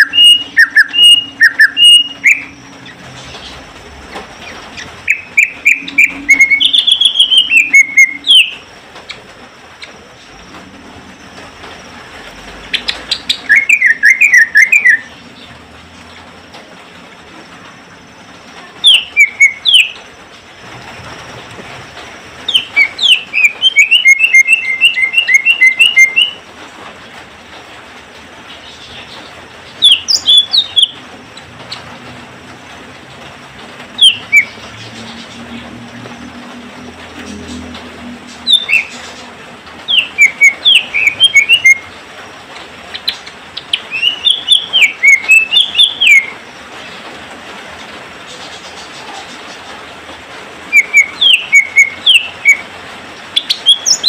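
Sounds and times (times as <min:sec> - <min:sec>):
bird rapid chirping: 0:00.0 - 0:03.6, 0:04.3 - 0:10.0, 0:12.7 - 0:15.5, 0:18.8 - 0:20.0, 0:22.5 - 0:26.4, 0:28.5 - 0:31.9, 0:33.9 - 0:35.6, 0:38.3 - 0:41.9, 0:42.9 - 0:46.4, 0:50.7 - 0:52.7, 0:53.3 - 0:54.0.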